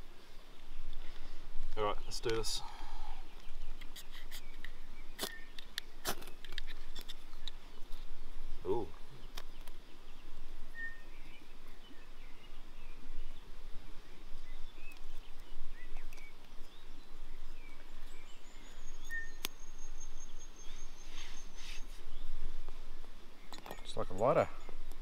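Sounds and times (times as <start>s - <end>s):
steady outdoor hiss: 0.0s - 25.0s
short bird chirps: 3.8s - 5.6s, 18.2s - 22.2s.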